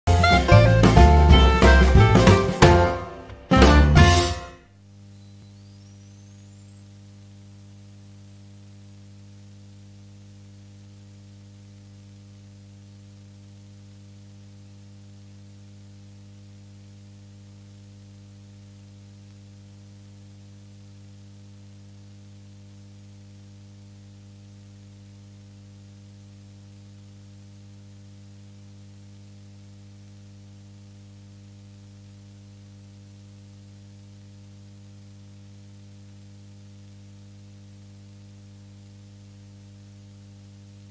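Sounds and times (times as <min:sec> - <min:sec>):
thin high whine: 0:00.1 - 0:09.8
electrical mains hum: 0:00.1 - 0:40.9
faint hiss: 0:04.8 - 0:14.0.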